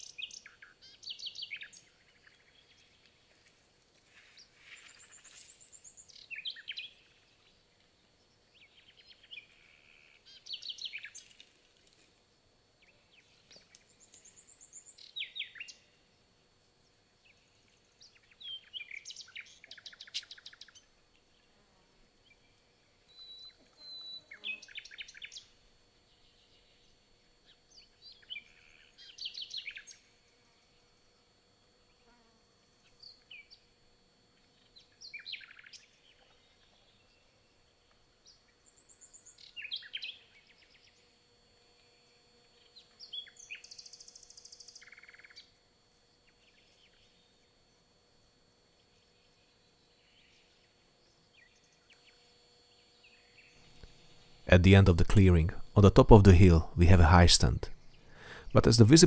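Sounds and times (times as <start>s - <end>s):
songbird singing: 0.0s - 3.2s, 4.8s - 9.6s, 10.3s - 11.4s, 12.8s - 15.9s, 17.2s - 21.5s, 38.2s - 41.0s, 42.7s - 45.5s.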